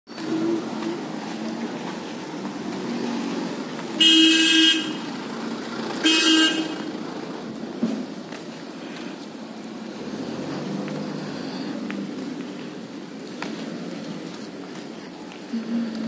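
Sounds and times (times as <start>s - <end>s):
street traffic hum: 0.1s - 16.0s
vehicle horn honking: 4.0s - 5.1s, 6.0s - 6.9s.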